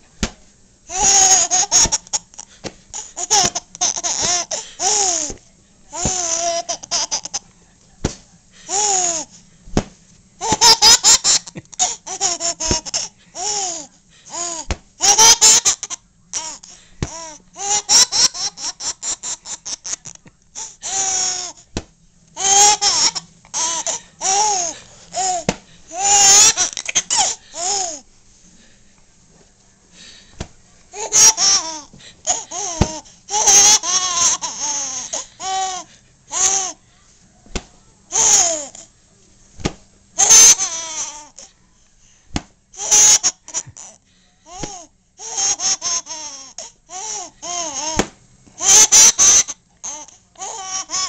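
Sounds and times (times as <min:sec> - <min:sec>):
baby breathing: 0:00.9 - 0:05.4, 0:22.4 - 0:28.8, 0:29.9 - 0:36.8
baby laughing: 0:00.9 - 0:07.4, 0:10.4 - 0:20.2, 0:22.4 - 0:28.0, 0:31.0 - 0:36.7, 0:42.8 - 0:48.0, 0:48.6 - 0:51.0.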